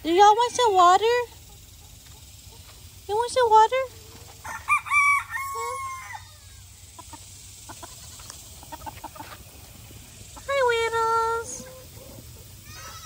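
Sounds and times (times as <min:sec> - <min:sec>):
rooster crowing: 0:04.4 - 0:06.7
faint clucking: 0:06.8 - 0:10.6.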